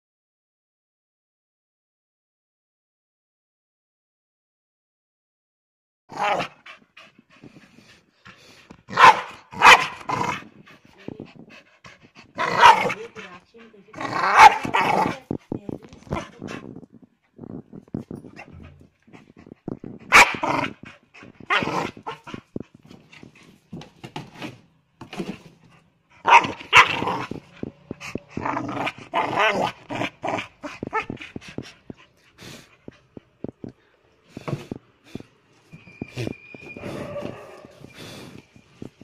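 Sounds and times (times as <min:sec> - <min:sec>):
dog barking and growling: 0:06.1 - 0:06.8, 0:08.8 - 0:23.3, 0:26.1 - 0:33.6, 0:36.8 - 0:37.9.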